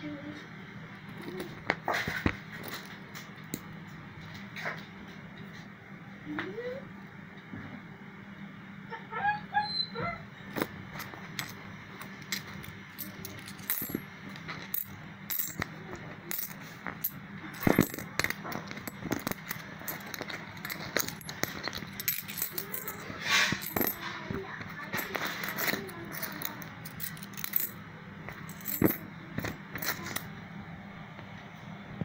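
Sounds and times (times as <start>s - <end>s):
metal coins clinking: 10.5s - 30.3s.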